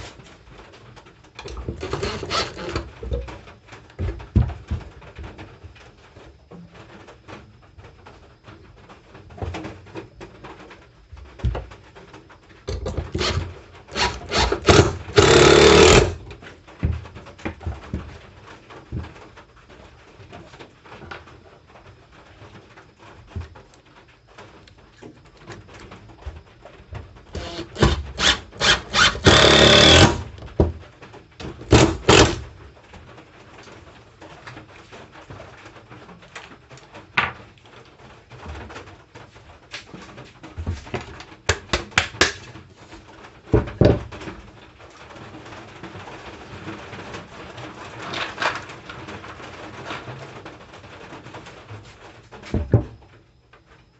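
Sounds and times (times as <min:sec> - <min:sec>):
boards knocking: 0:01.4 - 0:03.4, 0:12.7 - 0:18.1, 0:27.4 - 0:30.8, 0:31.4 - 0:32.5
impact driver driving screws: 0:01.7 - 0:02.8, 0:13.2 - 0:16.2, 0:27.4 - 0:30.3, 0:31.7 - 0:32.4.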